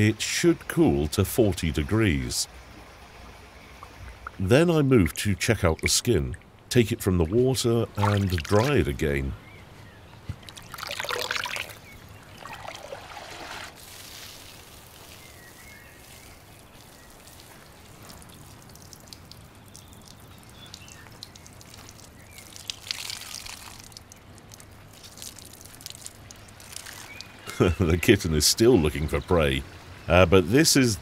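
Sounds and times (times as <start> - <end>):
water trickling and dripping: 0.0 - 9.4, 10.1 - 31.0
water splashing: 3.2 - 9.3, 10.3 - 30.0.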